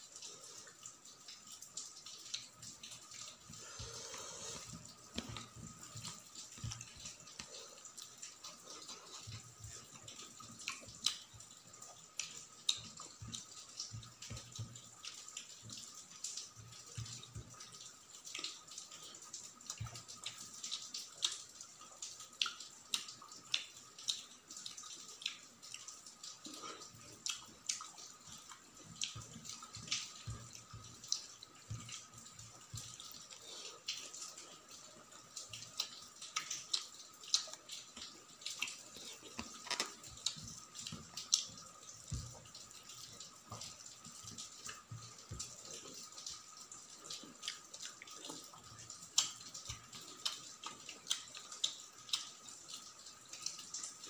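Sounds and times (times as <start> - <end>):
chewing and lip smacks: 22.3 - 32.0, 35.5 - 41.5, 46.9 - 52.4.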